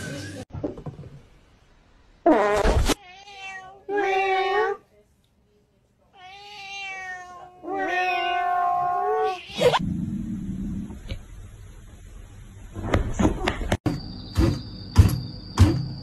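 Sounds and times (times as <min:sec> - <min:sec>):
cat meowing: 0:03.0 - 0:04.8, 0:06.2 - 0:09.8.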